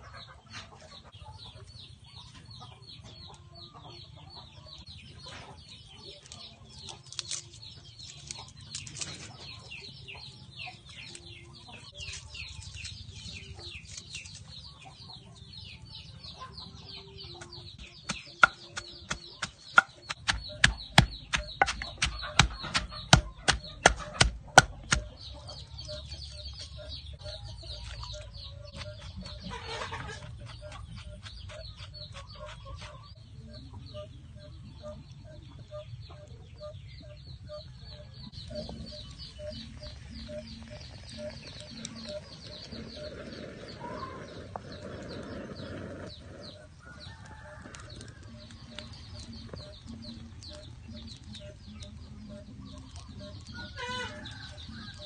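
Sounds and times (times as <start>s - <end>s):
chickens clucking: 0.0s - 55.0s
pestle pounding in mortar: 17.8s - 25.1s.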